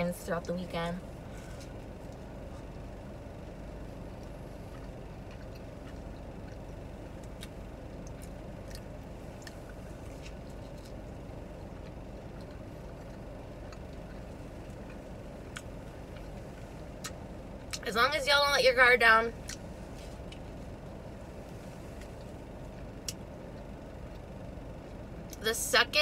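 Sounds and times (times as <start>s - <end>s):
car engine idling: 0.0s - 26.0s
chewing mouth clicks: 4.1s - 11.0s.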